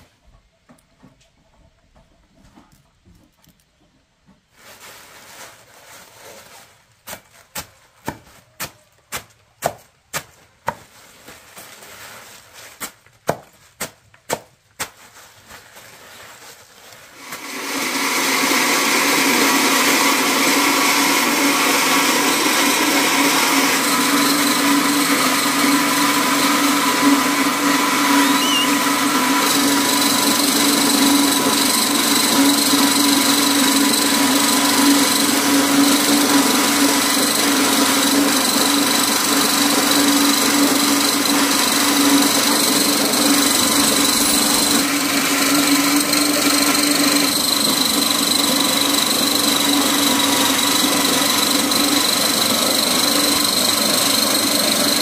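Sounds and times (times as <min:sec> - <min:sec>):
electric grinding mill motor whine: 0:17.1 - 0:55.0.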